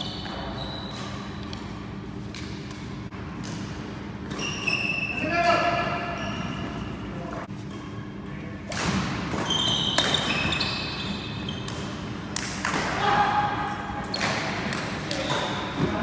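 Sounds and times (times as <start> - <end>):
shoe squeaks: 0.0 - 1.5, 4.3 - 8.2, 9.4 - 11.9.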